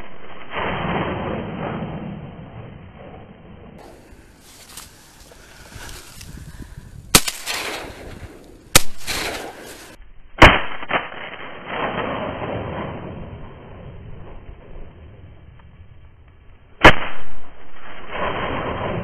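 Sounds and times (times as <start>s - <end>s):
rustling noise: 3.8s - 10.0s
shotgun shots echoing: 7.1s - 13.1s, 16.8s - 19.0s.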